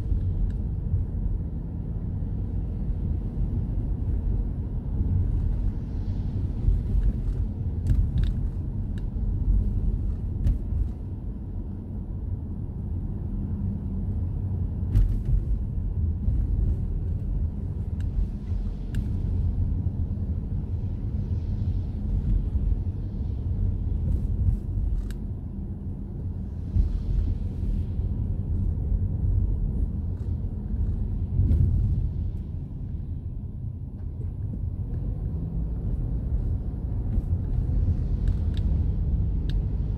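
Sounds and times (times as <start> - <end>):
car engine and tyres on wet road: 0.0 - 39.9.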